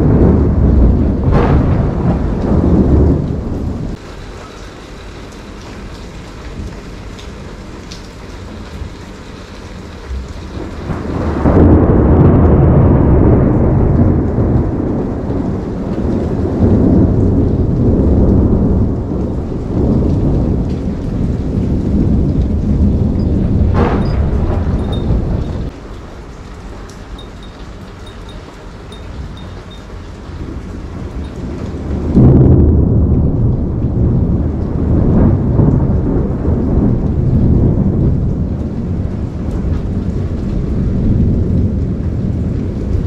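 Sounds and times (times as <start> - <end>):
thunder rumbling: 0.0 - 4.0, 5.8 - 43.0
steady rain falling: 0.0 - 43.0.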